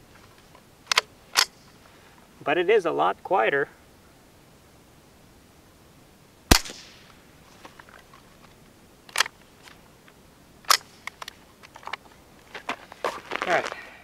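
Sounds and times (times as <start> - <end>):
rifle action clicks: 0.9 - 1.6, 9.1 - 9.4
rifle shot crack with echo: 6.5 - 7.2.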